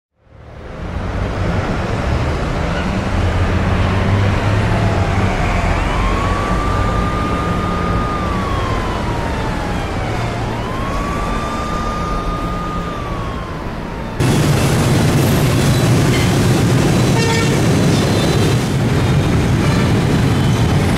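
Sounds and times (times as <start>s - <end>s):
engine and road rumble: 0.1s - 20.9s
siren wailing: 3.6s - 18.6s.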